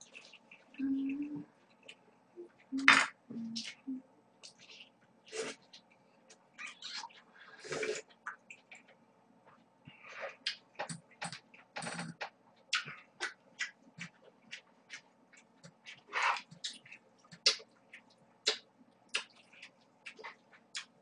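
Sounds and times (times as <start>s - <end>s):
slurping noodles: 7.6s - 8.1s
chewing noodles: 10.2s - 21.0s.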